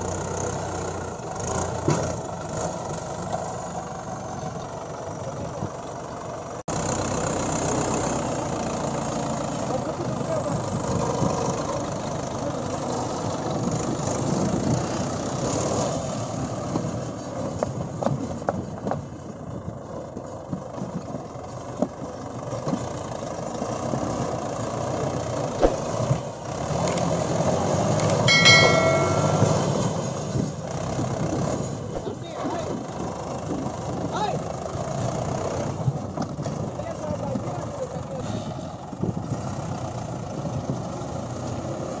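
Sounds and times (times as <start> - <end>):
tractor diesel engine running: 0.0 - 38.0
short high-pitched tone: 28.0 - 29.7
iron wheels knocking: 28.0 - 29.8.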